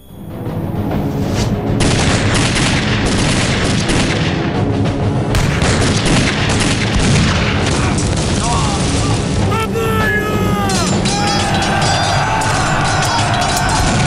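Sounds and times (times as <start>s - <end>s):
rapid gunfire: 1.8s - 4.6s, 5.3s - 9.4s.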